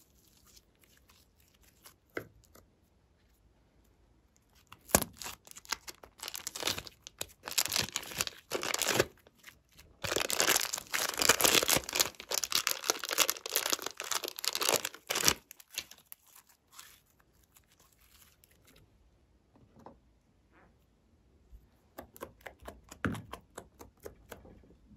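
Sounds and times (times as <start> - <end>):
plastic wrapper crinkling and tearing: 4.6 - 18.8.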